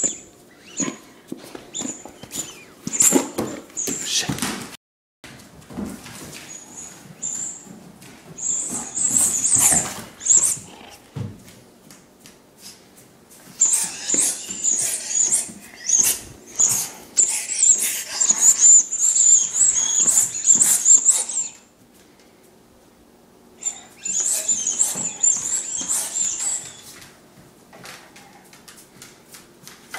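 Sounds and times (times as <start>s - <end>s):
squeaky toy squeaking: 13.6s - 21.6s, 23.6s - 26.8s.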